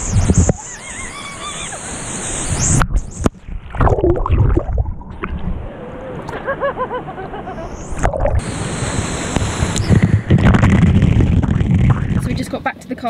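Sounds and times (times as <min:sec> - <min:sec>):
woman laughing: 0:06.3 - 0:07.9.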